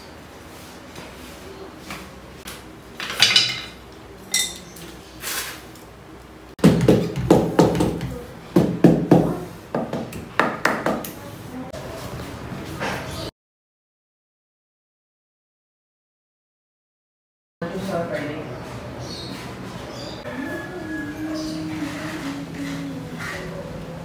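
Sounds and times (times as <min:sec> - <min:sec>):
hand tools clinking: 0:03.0 - 0:04.9.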